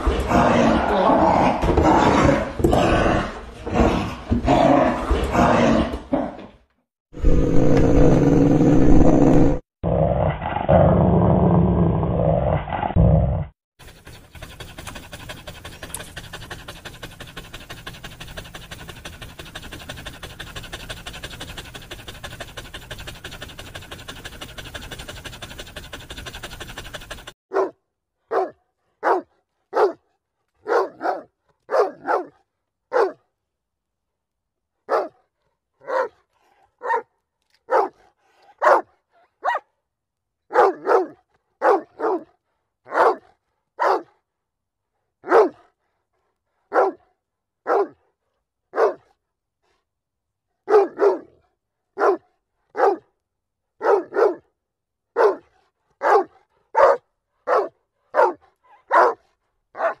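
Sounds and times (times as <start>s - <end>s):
dog barking: 27.5s - 33.3s, 34.9s - 35.2s, 35.8s - 36.2s, 36.8s - 37.1s, 37.7s - 39.7s, 40.5s - 44.2s, 45.2s - 45.7s, 46.7s - 48.0s, 48.7s - 49.1s, 50.6s - 51.4s, 52.0s - 53.1s, 53.8s - 54.5s, 55.2s - 60.0s.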